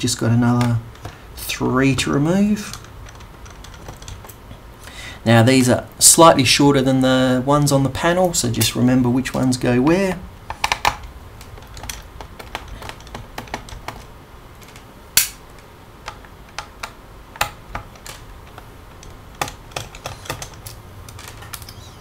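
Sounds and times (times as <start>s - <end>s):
screwdriver clicking on screws: 16.1s - 21.8s.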